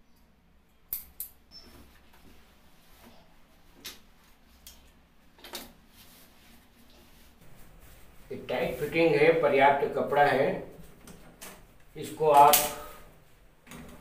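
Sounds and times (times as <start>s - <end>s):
fabric rustling: 5.8s - 9.4s.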